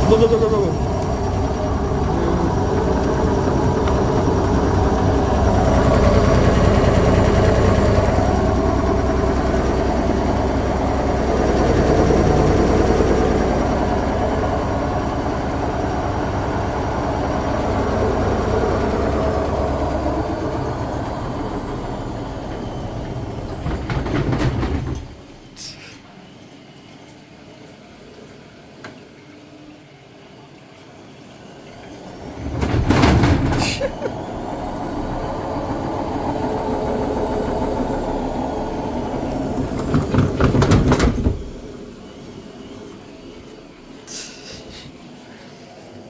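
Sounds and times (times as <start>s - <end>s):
high whine falling in pitch: 0.0s - 23.9s, 33.9s - 44.1s
washing machine drum rattling and thumping: 22.6s - 25.2s, 32.3s - 33.9s, 39.3s - 41.8s.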